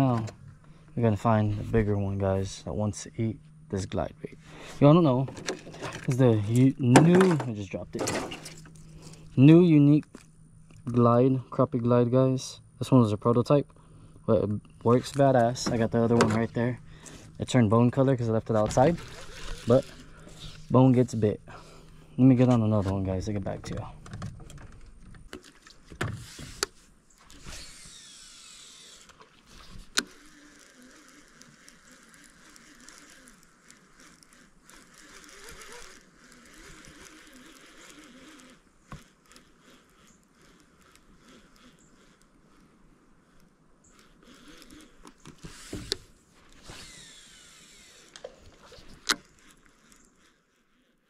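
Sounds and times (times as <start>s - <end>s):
fishing reel whirring: 8.4s - 10.8s, 14.8s - 22.4s, 25.3s - 51.0s
reel winding: 15.1s - 22.8s, 24.4s - 51.0s
reel click: 25.3s - 50.4s.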